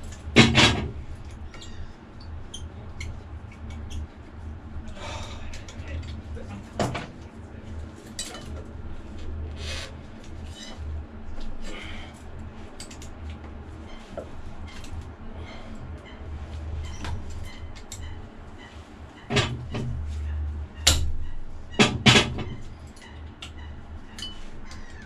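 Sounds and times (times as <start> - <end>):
small metallic clicks and clinks: 22.9 - 24.9.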